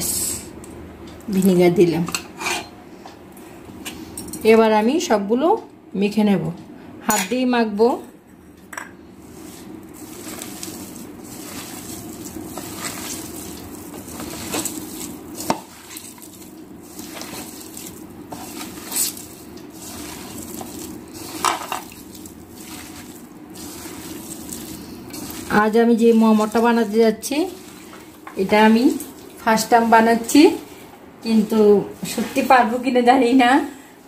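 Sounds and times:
hand squishing wet food filling: 9.2s - 29.5s.

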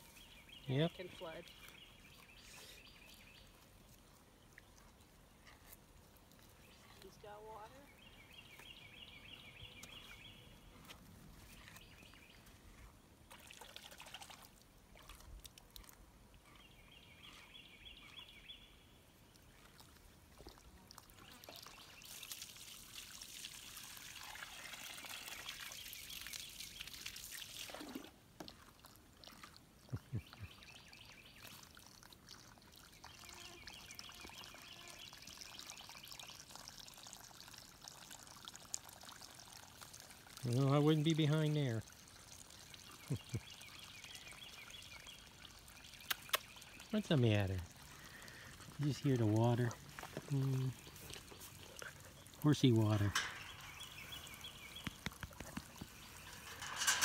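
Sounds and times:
hose water splashing into pool: 13.2s - 16.4s, 19.2s - 57.0s.

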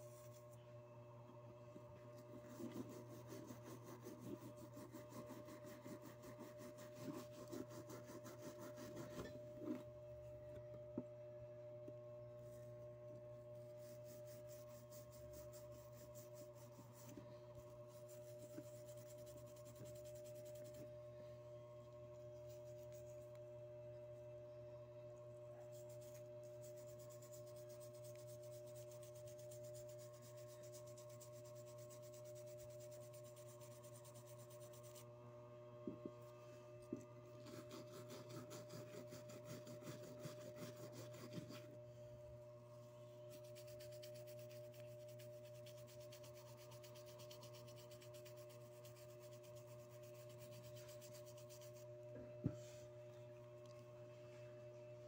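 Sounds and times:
faint hum: 0.0s - 55.0s
toothbrush scrubbing metal: 25.6s - 35.0s, 43.3s - 51.9s.

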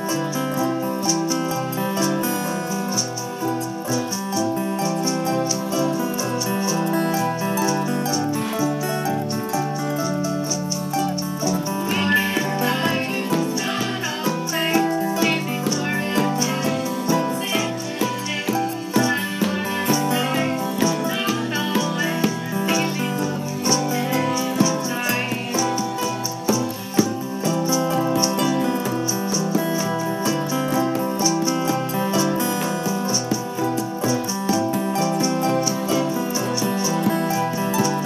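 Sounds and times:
high rattle keeping the beat: 0.0s - 38.0s
strummed acoustic guitar: 0.0s - 38.0s.

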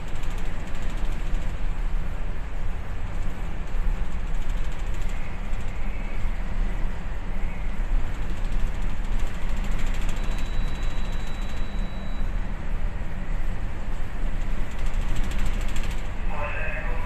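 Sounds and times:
low rumbling aboard ship: 0.0s - 17.0s
fine rattling: 3.1s - 6.0s, 14.4s - 16.2s.

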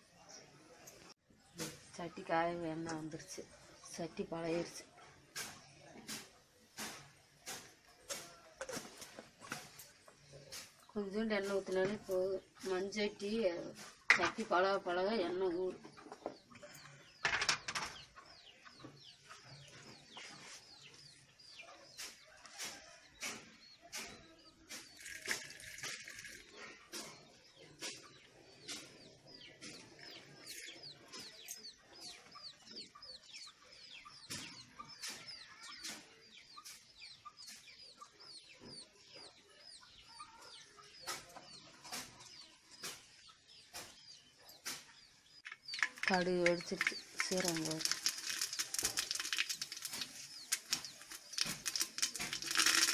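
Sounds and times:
chickens clucking: 0.0s - 52.9s
sharp crackles and pops: 45.4s - 52.9s.

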